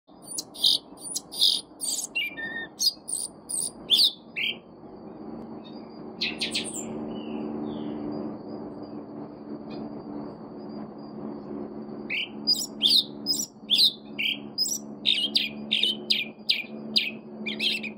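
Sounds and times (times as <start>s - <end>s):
bird singing whistled notes: 0.1s - 4.8s, 5.6s - 8.2s, 12.0s - 17.9s
low steady hum: 0.1s - 17.9s.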